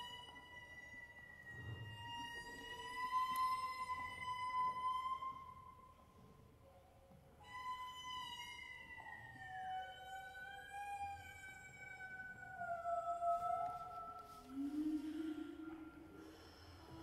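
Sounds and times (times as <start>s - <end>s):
soprano singing wordless tone: 12.8s - 17.0s.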